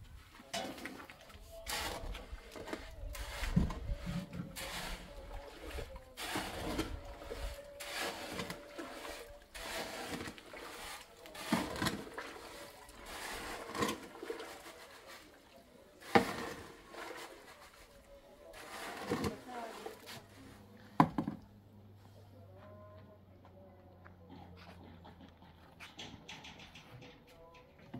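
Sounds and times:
shovel scraping wet cement: 0:00.5 - 0:15.4, 0:16.0 - 0:20.7.

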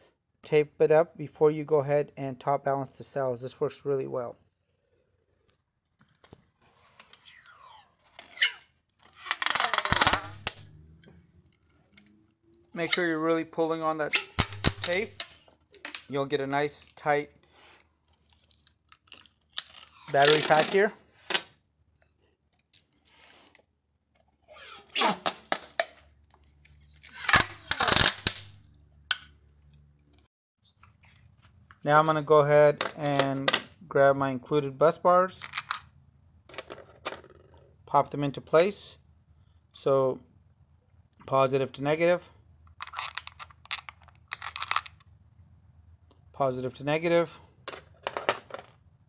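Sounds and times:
tape pulled off roll: 0:06.6 - 0:11.2, 0:27.0 - 0:28.5
tape ripping off roll: 0:06.9 - 0:11.0, 0:14.1 - 0:16.1, 0:17.6 - 0:21.6, 0:24.5 - 0:26.0, 0:26.9 - 0:28.6.

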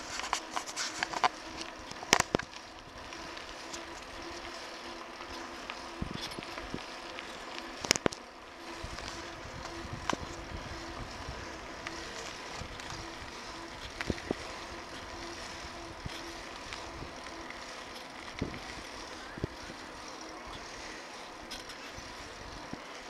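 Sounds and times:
bicycle rolling on pavement: 0:00.0 - 0:23.0
clicks and rattles from bumps: 0:00.1 - 0:02.6, 0:06.1 - 0:08.2.

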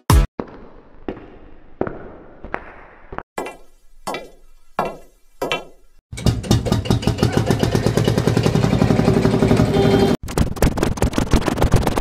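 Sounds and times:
tractor engine chugging: 0:06.2 - 0:10.1.

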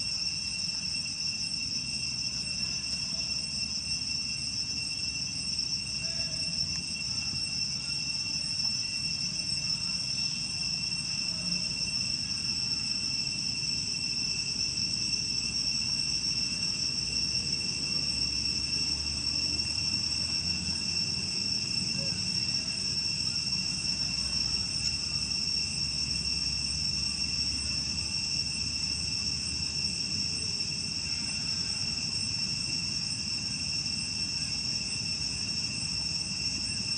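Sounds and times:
shrill insect chorus: 0:00.0 - 0:36.9.

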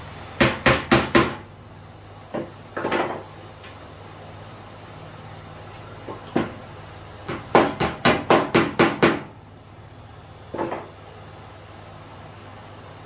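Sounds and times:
hammer hitting nail: 0:00.4 - 0:01.4, 0:07.3 - 0:09.3.

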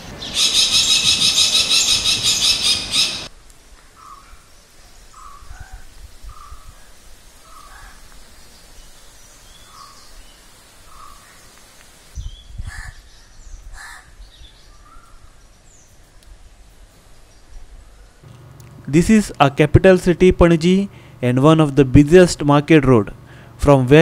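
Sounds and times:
small birds chirping: 0:00.0 - 0:03.3, 0:03.9 - 0:18.2
crows cawing: 0:04.0 - 0:04.4, 0:05.2 - 0:08.1, 0:10.9 - 0:11.3, 0:12.7 - 0:13.0, 0:13.7 - 0:14.2.

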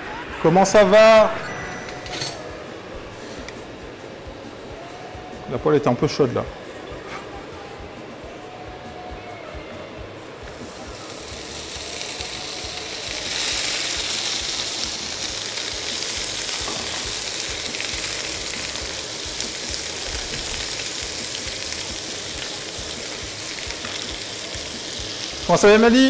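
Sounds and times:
sausage sizzling in a frying pan: 0:10.4 - 0:26.0.

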